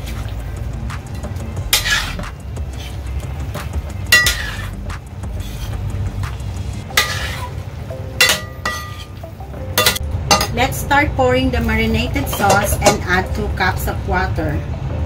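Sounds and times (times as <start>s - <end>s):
metal spoon scraping a pan: 1.7s - 6.0s, 6.9s - 7.6s, 8.2s - 9.2s, 12.2s - 13.2s.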